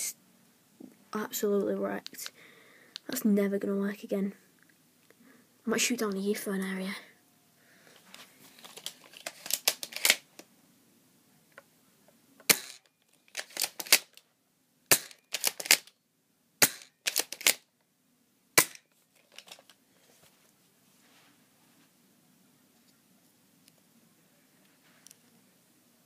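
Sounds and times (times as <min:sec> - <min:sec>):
bb gun shots cracking: 0:12.5 - 0:12.8, 0:14.9 - 0:15.8, 0:16.6 - 0:17.6, 0:18.6 - 0:18.9
quick clicks: 0:14.9 - 0:15.9, 0:16.6 - 0:17.6.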